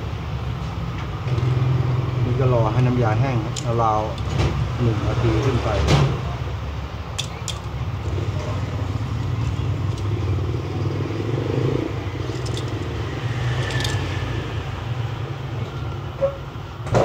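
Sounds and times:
metallic clicks of binder clips: 0:07.2 - 0:07.8, 0:13.6 - 0:14.0.

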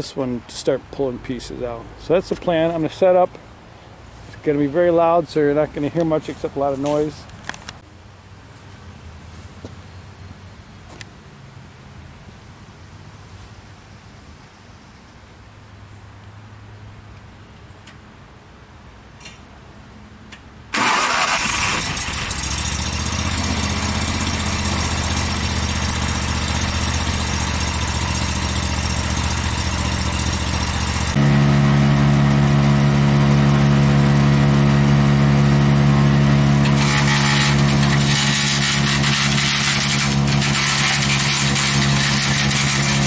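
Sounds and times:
wood chipper engine running: 0:20.7 - 0:43.0.

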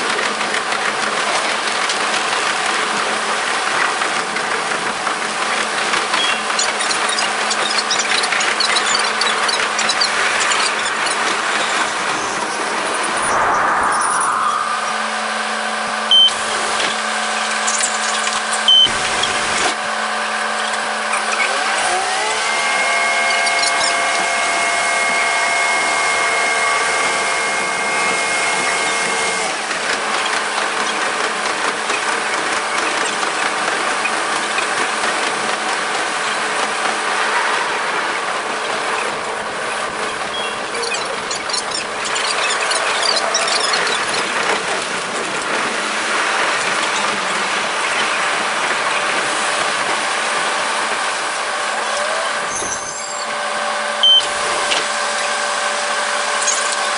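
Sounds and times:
railcar running noise: 0:00.0 - 0:56.9
engine revving: 0:05.9 - 0:29.7.

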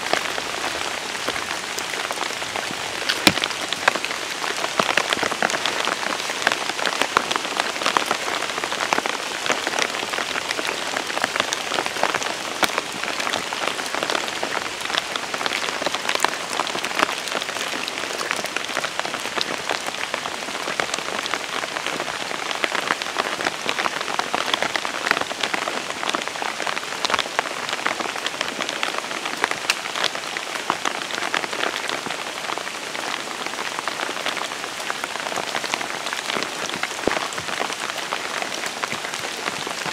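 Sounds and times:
rain falling on trees: 0:00.0 - 0:39.9.

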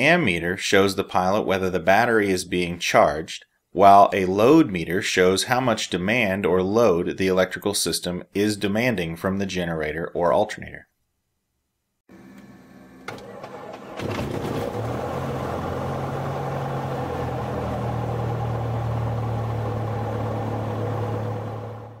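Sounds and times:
engine starting and humming: 0:12.1 - 0:22.0.

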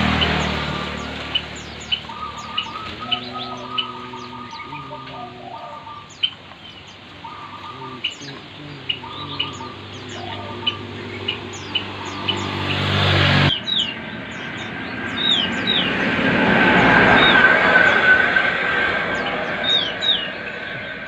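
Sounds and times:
low drone: 0:00.0 - 0:06.2, 0:07.2 - 0:21.0
doves cooing: 0:00.0 - 0:13.7
birds chirping: 0:00.0 - 0:21.0.

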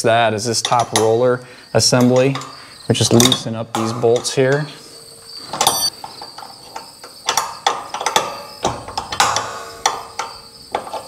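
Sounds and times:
metallic clink: 0:01.8 - 0:11.0.

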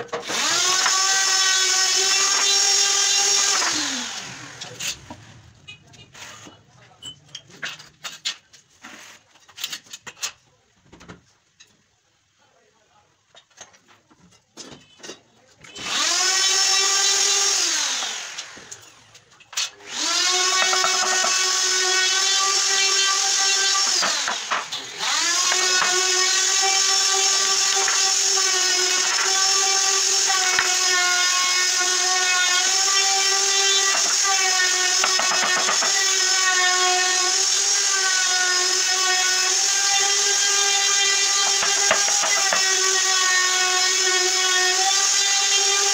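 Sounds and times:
electric drill whining: 0:00.2 - 0:05.2, 0:15.8 - 0:19.1, 0:19.7 - 0:45.9.

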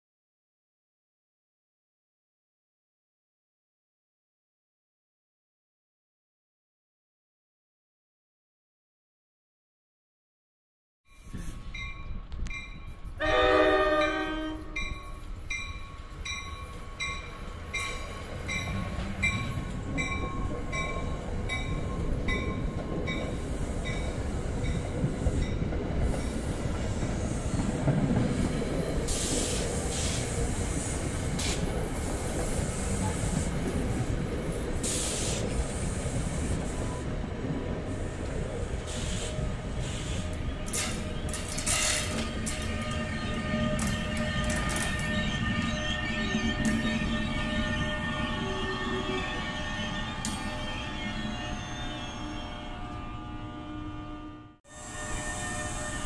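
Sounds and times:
crossing bell ringing: 0:11.1 - 0:26.3, 0:42.3 - 0:53.5
train rumbling past: 0:11.2 - 0:56.0
train horn blast: 0:13.2 - 0:15.0, 0:42.6 - 0:56.0.

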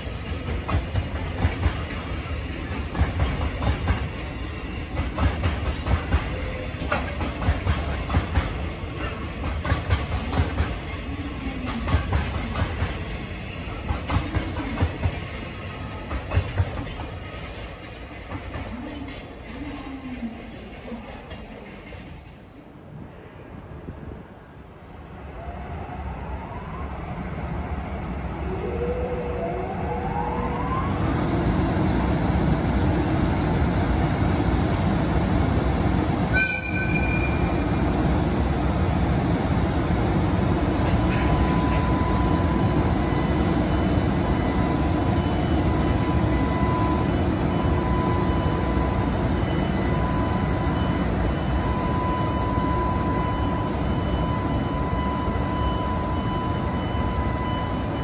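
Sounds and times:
electric locomotive whirring roar: 0:00.0 - 0:19.7, 0:22.8 - 0:58.0
locomotive horn toot: 0:36.3 - 0:37.4.

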